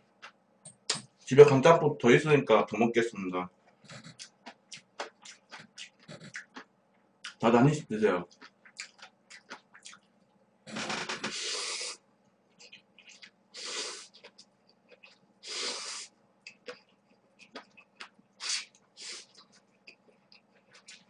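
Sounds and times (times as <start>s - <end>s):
chewing sounds: 3.7s - 7.4s, 8.3s - 10.2s, 12.5s - 15.6s, 16.4s - 21.0s.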